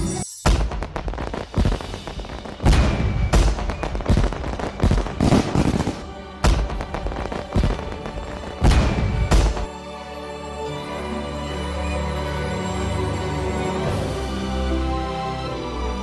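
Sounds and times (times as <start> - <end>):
music: 0.0 - 16.0
fireworks booming: 0.4 - 9.7.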